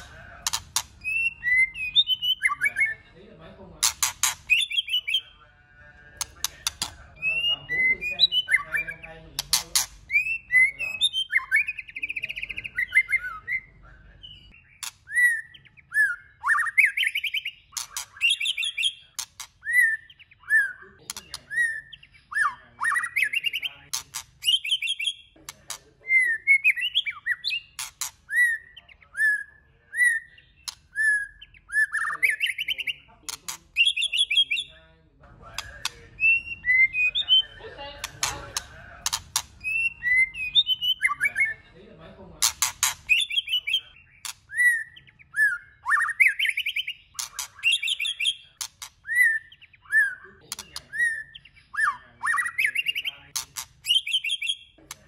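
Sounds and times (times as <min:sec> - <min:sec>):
bird singing whistled phrases: 0:00.0 - 0:03.1, 0:04.5 - 0:05.3, 0:06.7 - 0:09.1, 0:10.1 - 0:23.8, 0:24.4 - 0:25.3, 0:26.0 - 0:33.1, 0:33.8 - 0:34.8, 0:35.8 - 0:37.6, 0:39.6 - 0:41.6, 0:43.1 - 0:53.2, 0:53.8 - 0:54.8.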